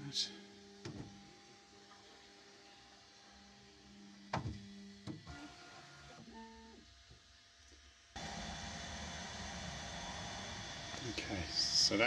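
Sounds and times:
short stepped motor whines: 8.2s - 12.0s
stepper motors humming: 8.2s - 12.0s.

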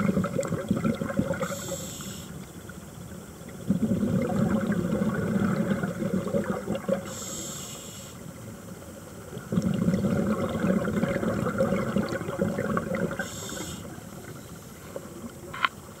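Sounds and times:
bubbling underwater exhalations: 0.0s - 1.7s, 3.6s - 7.1s, 9.4s - 13.6s
hissing regulator inhalations: 1.4s - 2.4s, 7.0s - 8.2s, 13.2s - 14.0s.

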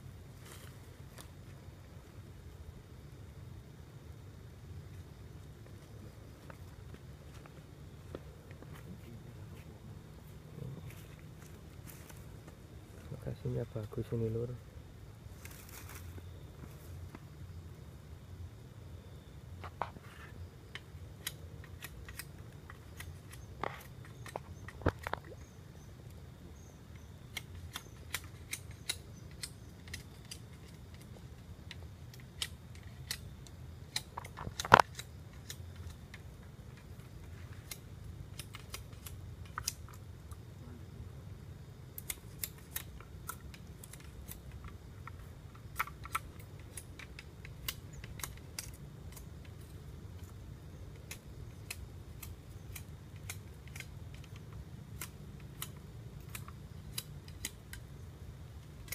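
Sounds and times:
sharp clicks and snaps: 20.7s - 25.5s, 26.9s - 40.5s, 41.9s - 57.9s, 58.6s - 58.9s.

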